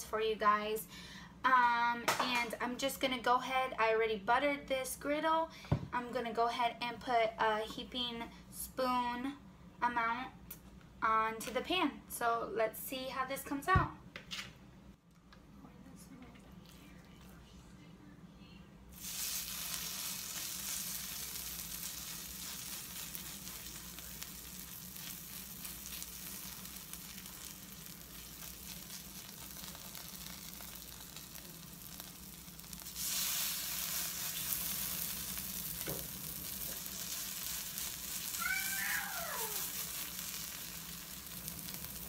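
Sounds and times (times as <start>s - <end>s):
batter sizzling on a griddle: 18.9s - 42.0s.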